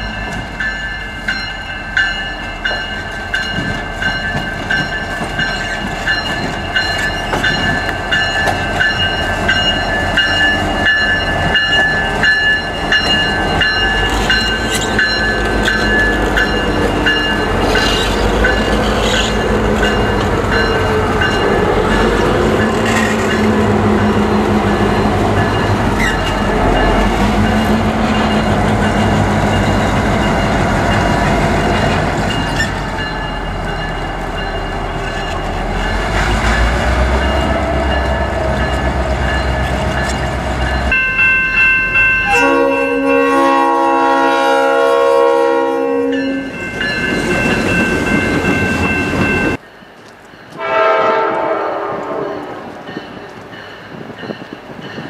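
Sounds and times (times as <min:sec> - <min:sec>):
crossing bell ringing: 0:00.0 - 0:55.0
diesel locomotive engine rumble: 0:00.0 - 0:55.0
train wheels on rails: 0:00.0 - 0:55.0
train air horn: 0:42.2 - 0:46.4, 0:50.6 - 0:52.6
distant train horn: 0:42.2 - 0:46.6, 0:50.6 - 0:52.7.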